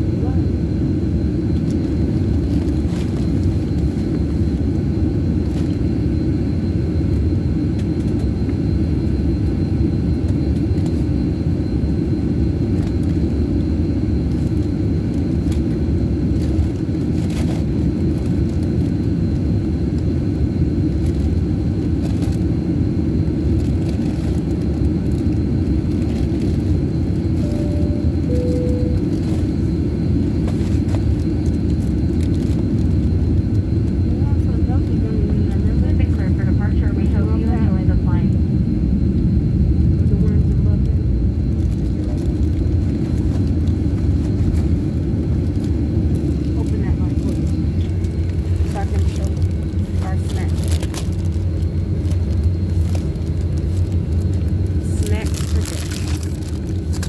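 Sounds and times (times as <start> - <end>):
airliner cabin rumble: 0.0 - 57.0
two-note chime: 27.4 - 29.1.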